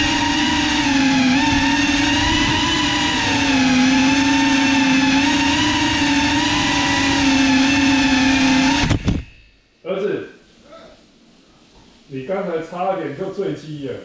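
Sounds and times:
drone propellers buzzing whine: 0.0 - 9.7.

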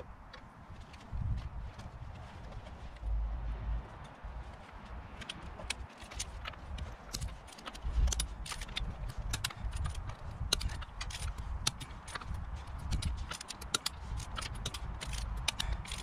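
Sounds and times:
ratcheting wrench clicks: 5.2 - 16.0.

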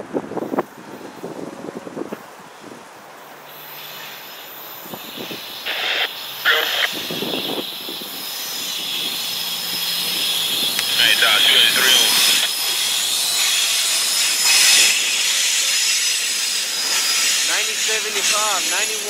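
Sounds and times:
freight train approaching: 0.0 - 19.0.

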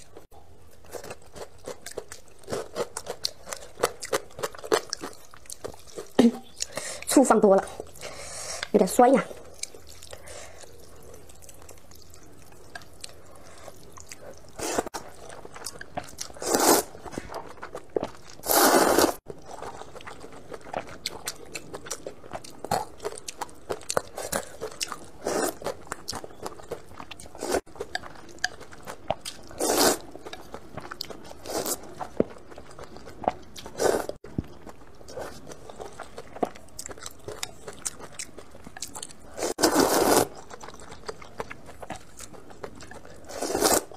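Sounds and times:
person chewing with smacks: 0.7 - 6.8, 9.4 - 43.9
slurping noodles: 16.3 - 17.0, 18.4 - 19.2, 29.6 - 30.0, 39.3 - 40.4, 43.2 - 43.9.

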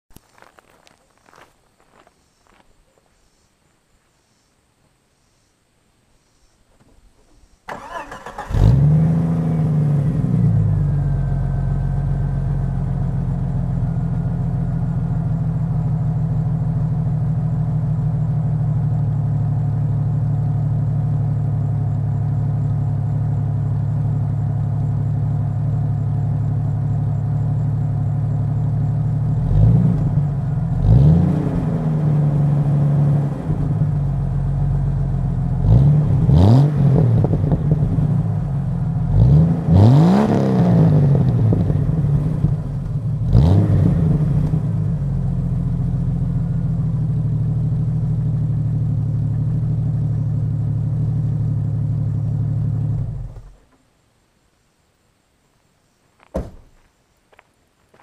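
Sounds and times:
engine revving: 7.7 - 12.6, 29.3 - 34.2, 35.5 - 45.4
car engine cranking and starting: 7.7 - 15.1
car engine idling: 9.4 - 30.9, 31.7 - 36.2, 40.9 - 53.7.

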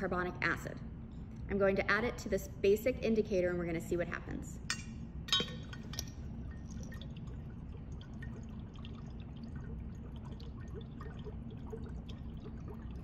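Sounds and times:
low room hum: 0.0 - 13.0
dry ice bubbling in water: 6.2 - 13.0.

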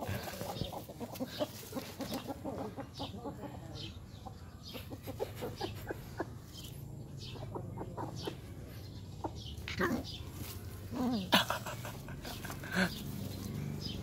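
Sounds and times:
chickens clucking: 0.0 - 14.0.

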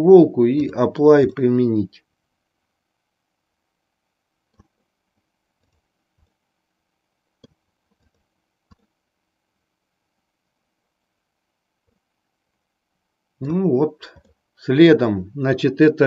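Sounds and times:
computer mouse clicks: 4.5 - 4.8, 5.6 - 6.4, 7.4 - 9.0.

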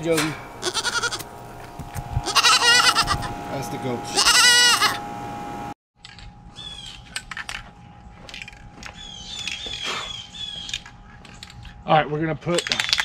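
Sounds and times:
birds chirping: 8.8 - 11.6.

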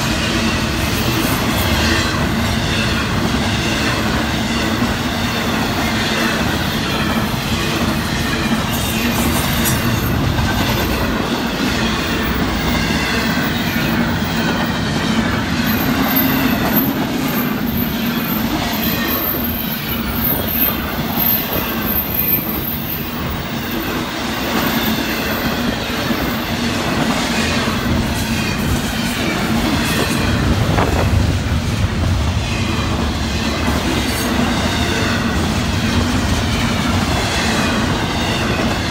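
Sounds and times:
train wheels rumbling on rails: 0.0 - 38.9
high wheel squeal: 7.6 - 30.8.

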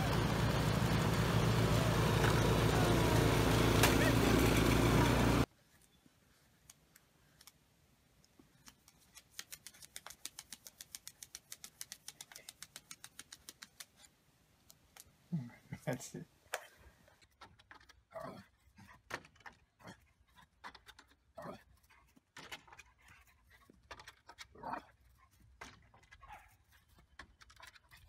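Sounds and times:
snowblower engine running: 0.0 - 5.5
paws tapping on tablet screen: 8.4 - 14.1.

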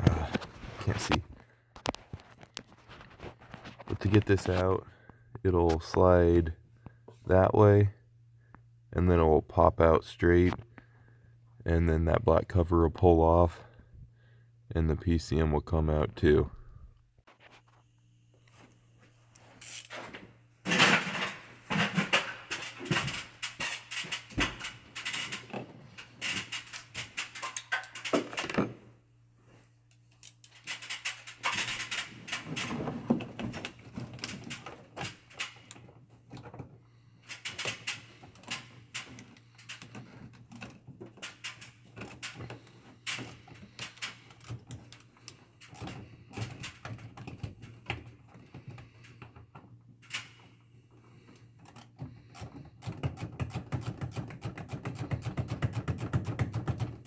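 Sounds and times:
hands rattling plastic and metal parts: 20.7 - 28.8, 29.9 - 57.0.

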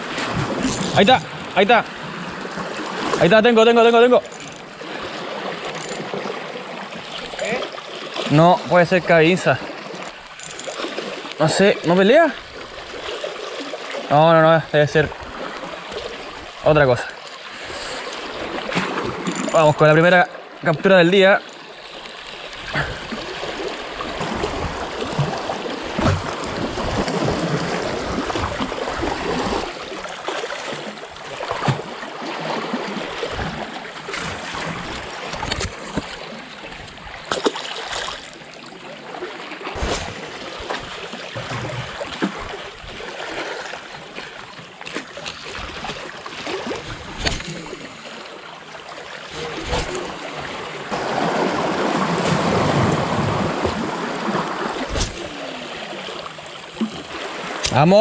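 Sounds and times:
water lapping around rocks: 0.0 - 58.0
handling knocks and clicks: 3.9 - 4.6.

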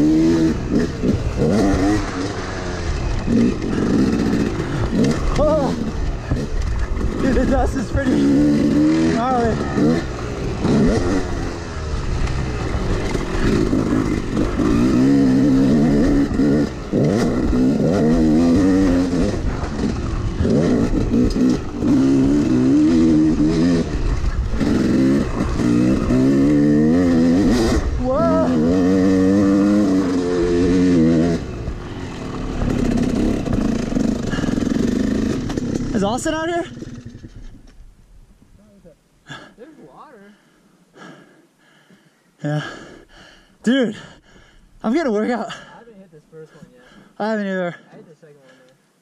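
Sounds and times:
two-stroke dirt bike engine revving: 0.0 - 37.7.

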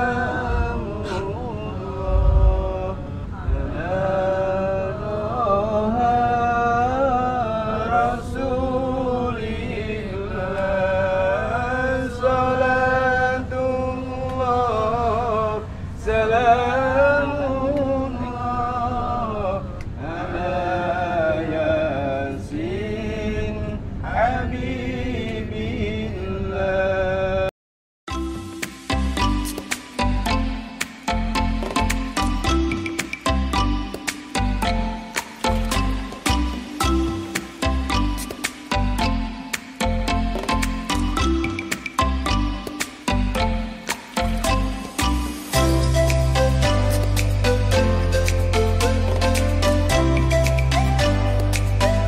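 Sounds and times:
low rumble: 0.0 - 5.7.

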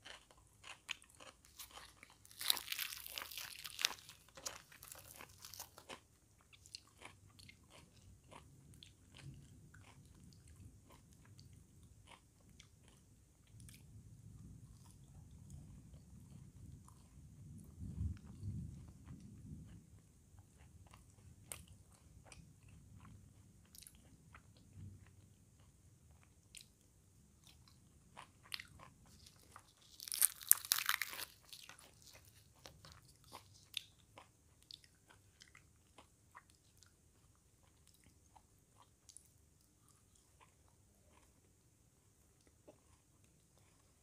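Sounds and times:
soft chewing: 0.0 - 44.0
fried bread crackling torn apart: 1.6 - 5.8, 29.8 - 32.1.

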